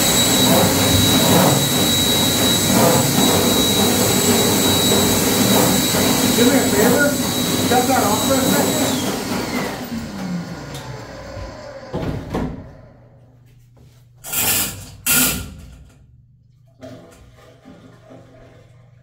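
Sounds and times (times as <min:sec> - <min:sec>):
drain machine motor winding down: 0:00.0 - 0:13.2.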